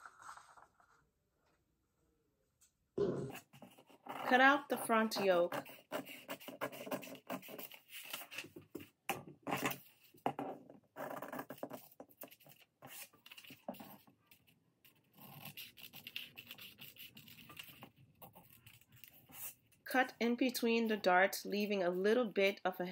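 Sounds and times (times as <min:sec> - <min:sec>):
paper rustling: 0:00.0 - 0:01.1, 0:06.0 - 0:08.9
scissors snipping paper: 0:15.2 - 0:19.5.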